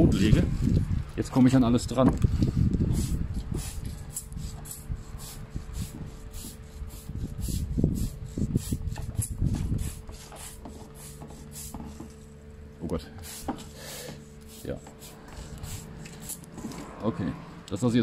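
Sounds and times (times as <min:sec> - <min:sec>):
faint steady hum: 0:00.0 - 0:18.0
spray bottle squirting: 0:13.2 - 0:16.6.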